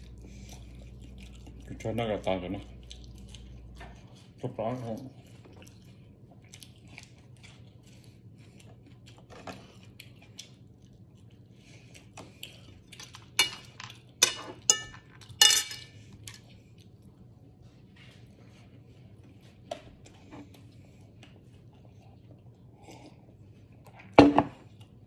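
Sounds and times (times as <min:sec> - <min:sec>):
fork clinking on ceramic plate: 0:13.4 - 0:15.9.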